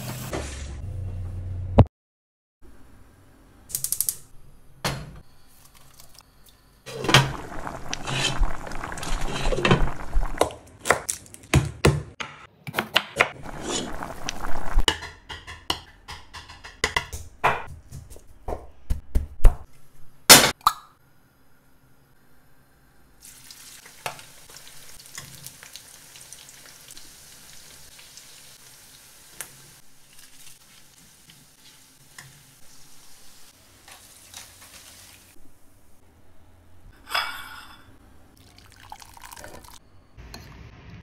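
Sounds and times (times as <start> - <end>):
dishes clinking: 37.0 - 38.0.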